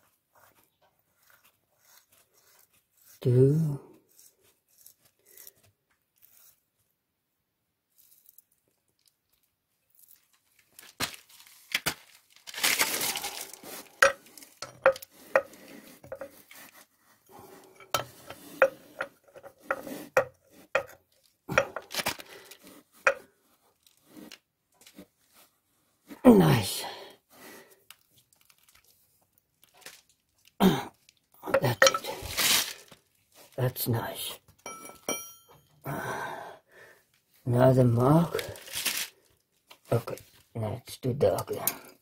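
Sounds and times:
metal tools clinking on engine block: 31.8 - 32.2, 34.6 - 35.7.

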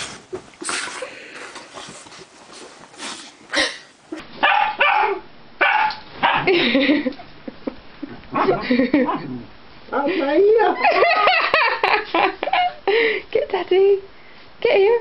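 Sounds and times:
rustling: 0.0 - 4.5
dog barking and yelping: 4.4 - 6.6, 8.3 - 9.4.

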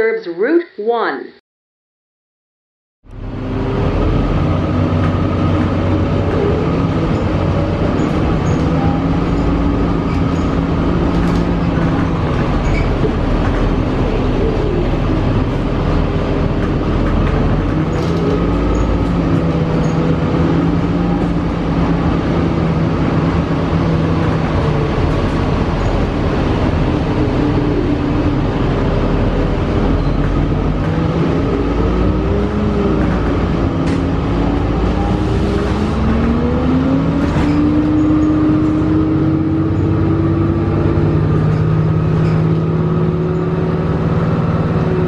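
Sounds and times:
bus drive whine gliding in pitch: 3.1 - 45.0.

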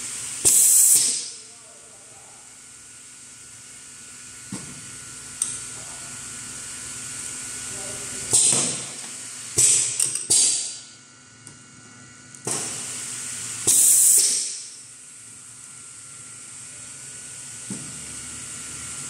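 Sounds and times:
faint machine hum: 0.0 - 19.0
pneumatic air hisses: 0.4 - 1.3, 12.5 - 14.8
pneumatic cylinder click: 0.4 - 1.3, 8.3 - 8.9, 9.6 - 10.8, 13.6 - 14.7.

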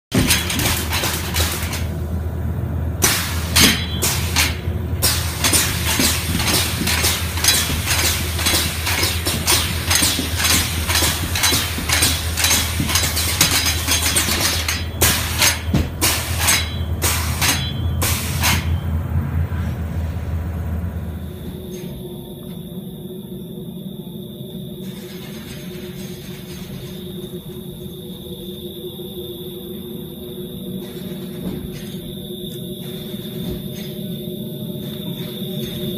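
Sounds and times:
rapid metallic clicking: 0.1 - 2.1, 3.0 - 18.8
steady low hum: 0.1 - 35.9.

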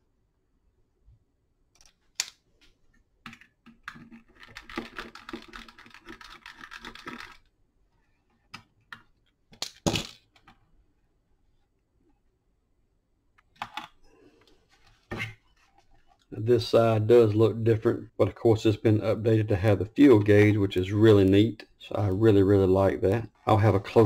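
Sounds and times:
plastic parts clicking and clattering: 8.4 - 10.6.

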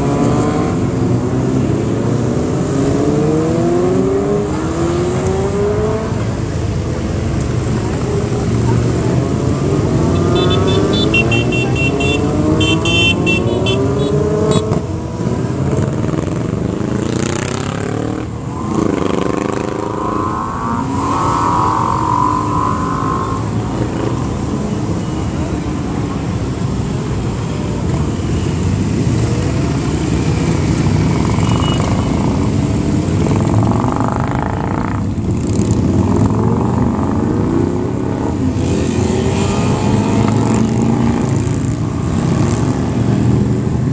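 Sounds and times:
motorbikes riding past revving: 0.0 - 26.6.

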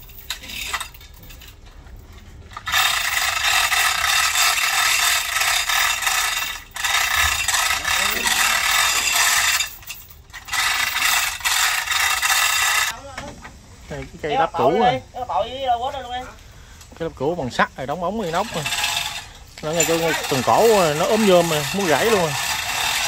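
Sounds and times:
metal ratchet clattering: 0.0 - 13.0, 18.2 - 23.0.

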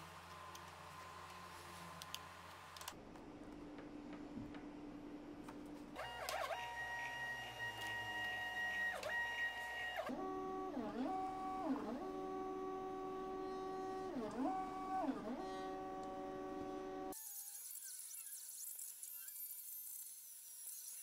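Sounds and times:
plotter motors whining: 6.0 - 17.2.

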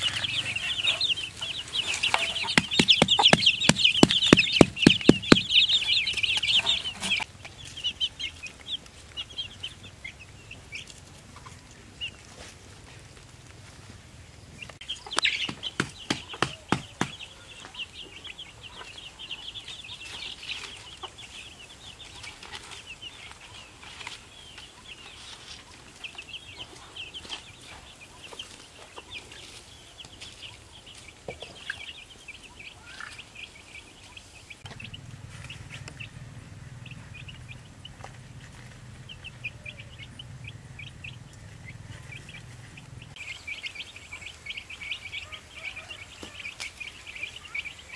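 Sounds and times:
young chickens peeping: 0.0 - 47.9
sharp knocks: 2.2 - 5.7, 15.4 - 17.2.

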